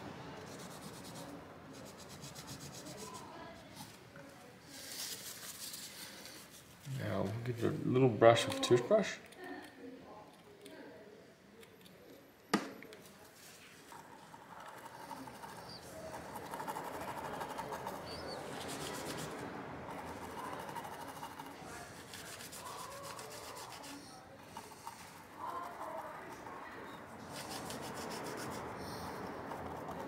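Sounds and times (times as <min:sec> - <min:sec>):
sharp tap: 0:12.5 - 0:12.8
toothbrush scrubbing circuit board: 0:13.9 - 0:26.4, 0:27.2 - 0:28.8.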